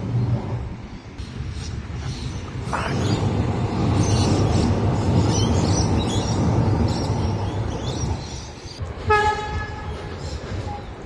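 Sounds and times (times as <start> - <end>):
birds chirping: 0.0 - 8.8
train rumbling over bridge: 0.0 - 11.0.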